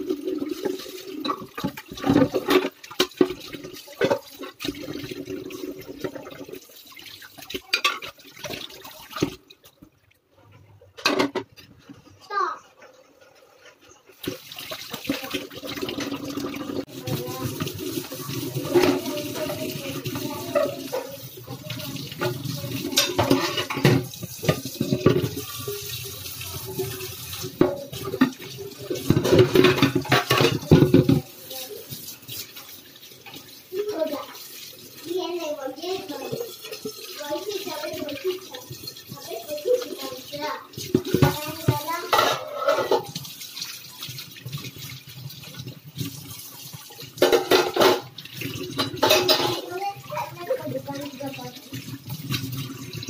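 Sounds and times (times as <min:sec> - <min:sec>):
dishes being scrubbed: 0:00.0 - 0:09.7, 0:11.0 - 0:53.0
water splashing in a metal sink: 0:00.0 - 0:53.0
crockery clinking against sink: 0:18.6 - 0:25.8, 0:26.5 - 0:31.3, 0:40.9 - 0:43.2, 0:47.2 - 0:49.9.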